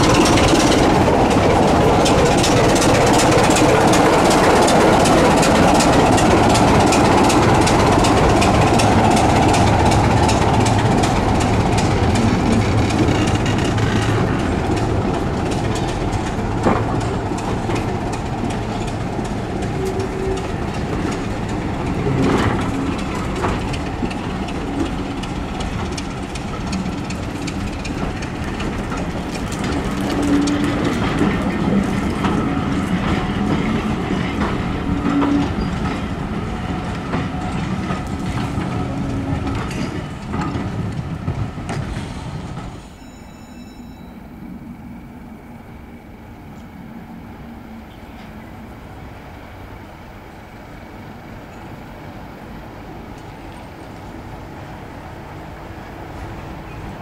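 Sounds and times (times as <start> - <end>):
train wheels clicking over rail joints: 0.0 - 43.2
diesel locomotive engine: 0.0 - 57.0
train coaches clunking: 0.0 - 57.0.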